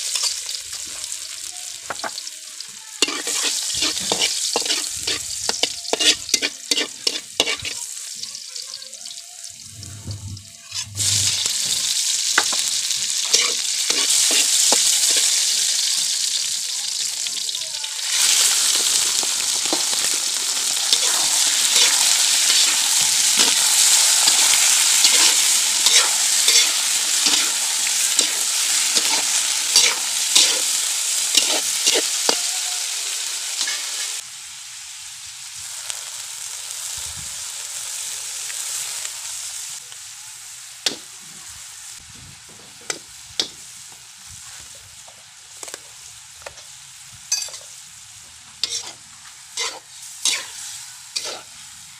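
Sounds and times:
chicken livers sizzling in oil: 0.0 - 51.9
metal spatula scraping a wok: 3.0 - 7.8, 9.6 - 12.5, 13.2 - 15.3, 21.0 - 32.5, 48.6 - 51.6.

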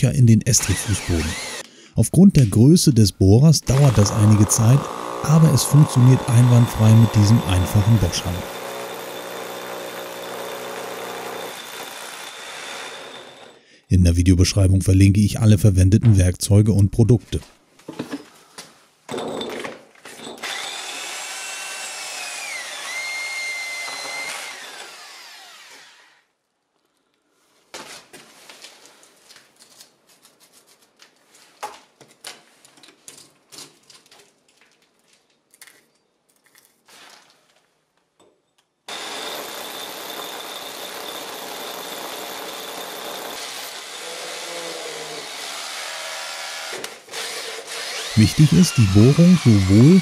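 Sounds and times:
hammer drill whining: 0.6 - 1.7, 3.7 - 13.6, 20.4 - 26.2, 38.9 - 50.0.

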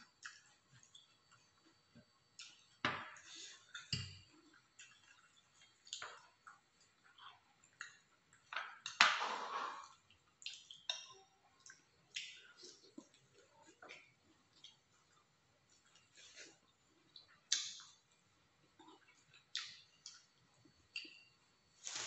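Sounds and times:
chewing: 9.7 - 21.3.

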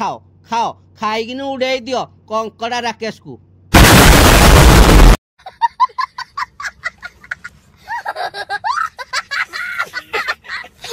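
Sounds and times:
loud explosion blast: 3.8 - 5.2
boy laughing: 5.4 - 10.9.

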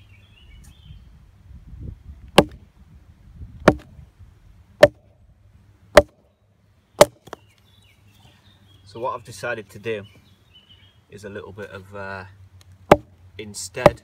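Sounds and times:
axe chopping wood: 2.4 - 2.6, 3.6 - 4.0, 4.8 - 5.1, 5.9 - 6.2, 7.0 - 7.4, 12.9 - 13.2, 13.8 - 14.0.

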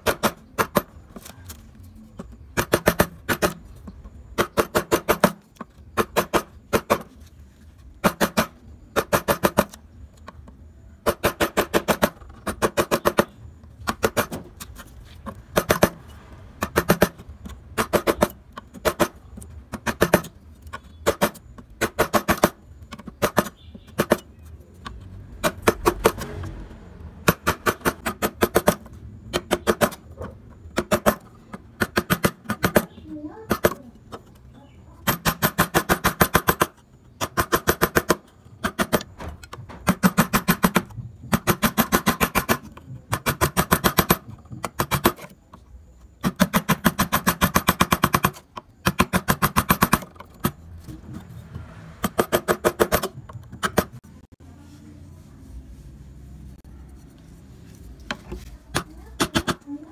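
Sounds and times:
wood-carving chisel strikes: 0.0 - 1.0, 2.6 - 7.1, 8.0 - 9.8, 15.4 - 26.4, 27.2 - 33.9, 35.0 - 45.4, 46.2 - 50.6, 52.0 - 54.0, 58.1 - 59.6.

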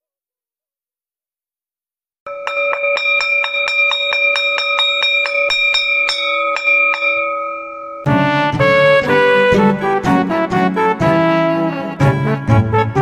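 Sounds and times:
bell-like chiming music: 2.3 - 10.4.

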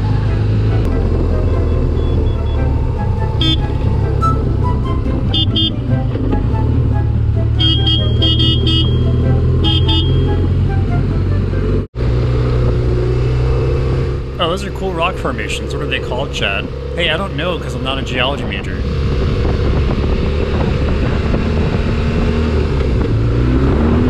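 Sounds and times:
motorcycle engine running: 0.0 - 24.0
motorcycle horn toots: 3.4 - 3.8, 5.3 - 5.9, 7.5 - 10.7.

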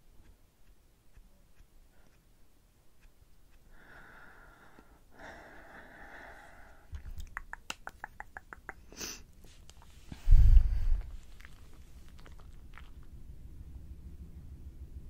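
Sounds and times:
sniff: 8.9 - 9.3.

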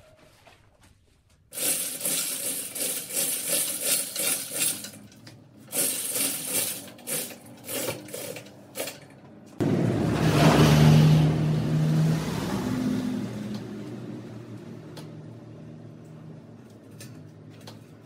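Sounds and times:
metallic clinking and scraping: 1.6 - 9.2.

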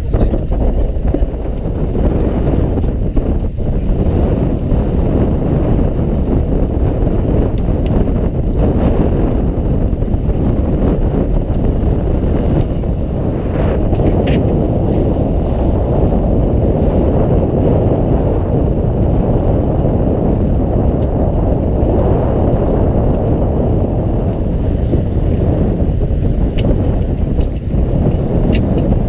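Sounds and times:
boat engine low rumble: 0.0 - 29.0
wind buffeting microphone: 0.0 - 29.0.

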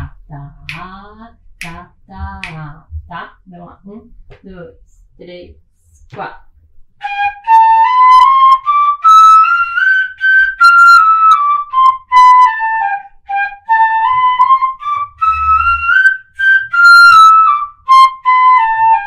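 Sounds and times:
wooden fife playing a scale: 1.6 - 2.9.

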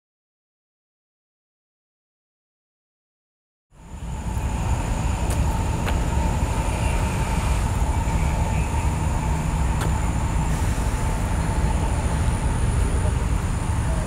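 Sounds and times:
rumble of passing vehicles: 3.7 - 14.0.

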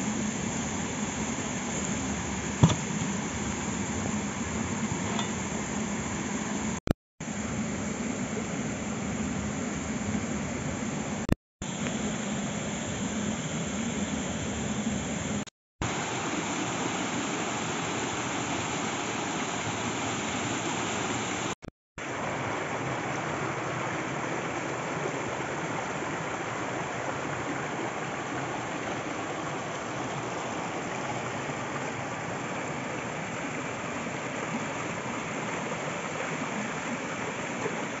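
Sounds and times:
stream cascading over rocks: 0.2 - 5.8, 15.8 - 38.0.

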